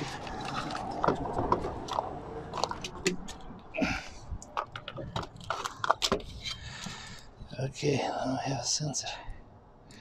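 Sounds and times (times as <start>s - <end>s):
rustling scrape: 0.0s - 1.8s.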